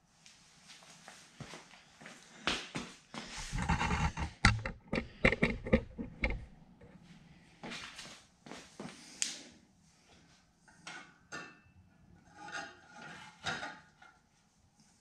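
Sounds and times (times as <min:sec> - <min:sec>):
objects knocking on concrete floor: 0:03.5 - 0:06.5.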